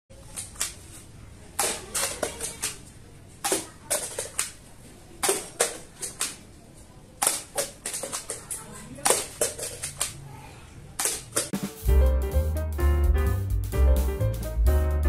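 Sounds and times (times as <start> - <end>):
plastic cups clattering on tiles: 1.6 - 4.6, 5.2 - 6.4, 7.2 - 10.2.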